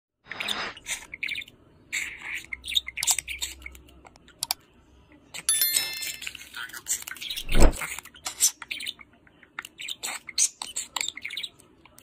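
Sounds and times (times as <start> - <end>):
budgerigar chirping: 0.4 - 3.7
bell-like chime: 5.5 - 6.4.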